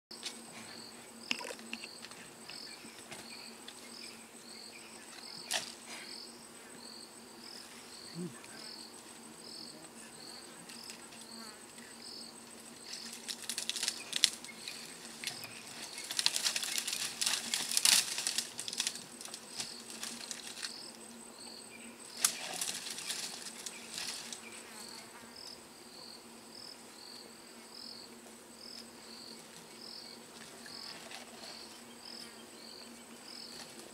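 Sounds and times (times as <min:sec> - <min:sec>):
insects chirping: 0:00.1 - 0:33.9
elephant rustling bushes: 0:12.4 - 0:20.9, 0:22.1 - 0:24.9.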